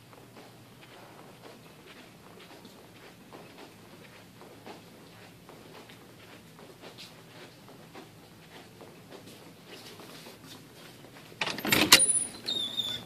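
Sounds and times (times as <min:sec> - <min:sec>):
footsteps on hard floor: 0:00.0 - 0:11.4
door push bar clacking: 0:11.4 - 0:12.5
door swinging open clatter: 0:11.4 - 0:13.0
high squeak: 0:11.8 - 0:13.0.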